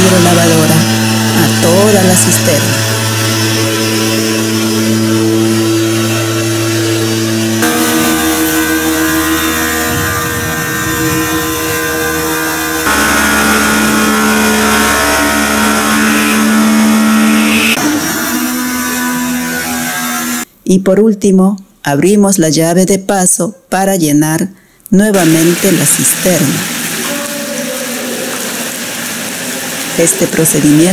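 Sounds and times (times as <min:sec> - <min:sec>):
pressure washer motor hum: 0:00.0 - 0:19.6, 0:25.1 - 0:30.9
water spray hissing: 0:25.2 - 0:30.9.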